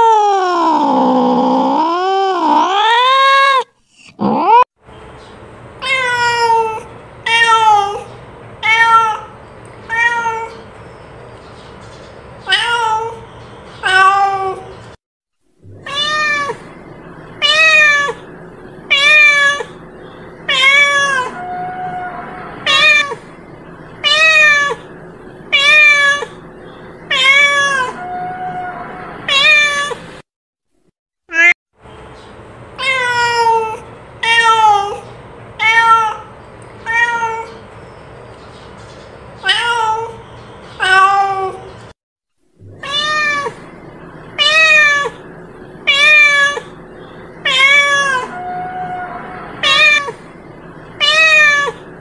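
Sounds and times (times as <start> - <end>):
cat meowing: 5.8 - 10.6, 12.4 - 13.2, 13.8 - 14.7, 15.7 - 16.7, 17.4 - 18.2, 18.9 - 19.8, 20.5 - 23.2, 24.0 - 24.9, 25.5 - 26.4, 27.1 - 30.0, 32.8 - 35.0, 35.6 - 37.6, 39.4 - 40.2, 40.8 - 41.7, 42.7 - 43.7, 44.4 - 45.2, 45.8 - 46.8, 47.4 - 50.3, 51.0 - 51.9.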